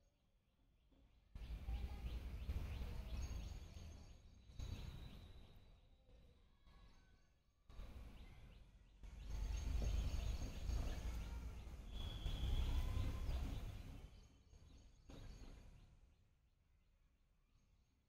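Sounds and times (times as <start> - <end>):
bird call: 9.3 - 14.0.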